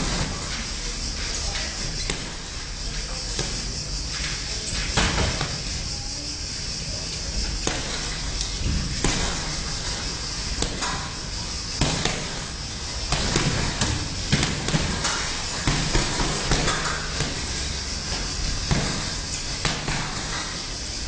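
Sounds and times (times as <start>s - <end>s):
steady hiss: 0.0s - 21.0s
boxing gloves smacking: 2.0s - 2.5s, 7.5s - 20.6s.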